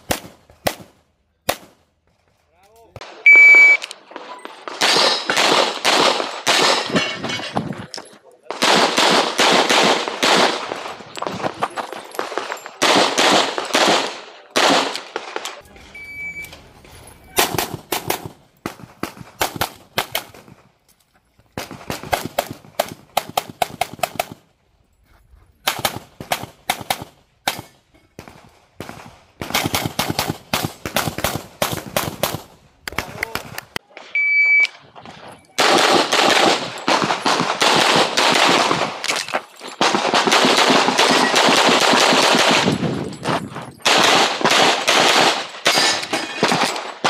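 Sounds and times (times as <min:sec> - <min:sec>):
short electronic beep: 0:03.3 - 0:03.9, 0:15.9 - 0:16.6, 0:34.2 - 0:34.8.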